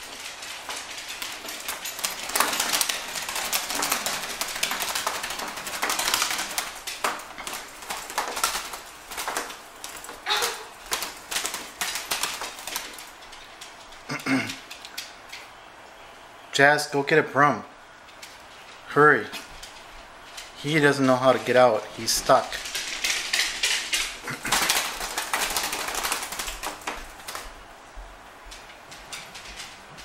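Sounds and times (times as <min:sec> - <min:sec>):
bird wings fluttering: 0:00.0 - 0:15.2, 0:19.5 - 0:27.6.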